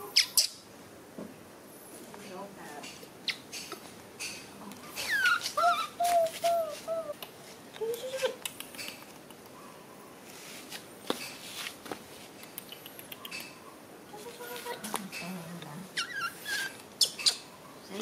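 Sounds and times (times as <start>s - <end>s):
young animal squeaky cries: 0.0s - 0.6s, 4.9s - 7.2s, 15.9s - 17.7s.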